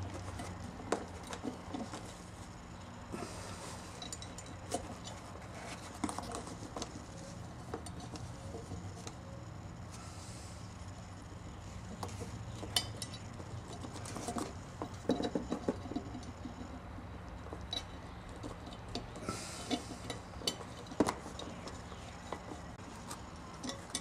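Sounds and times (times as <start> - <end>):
low steady hum: 0.0 - 24.0
small metal parts clicking: 3.6 - 9.2, 11.9 - 24.0.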